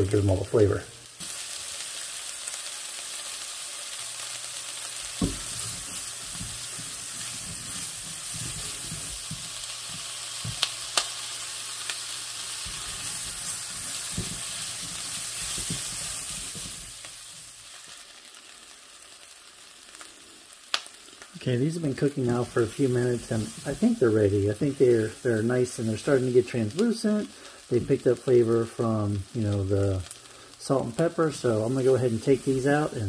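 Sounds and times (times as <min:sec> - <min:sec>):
onion sizzling in oil: 0:00.0 - 0:33.0.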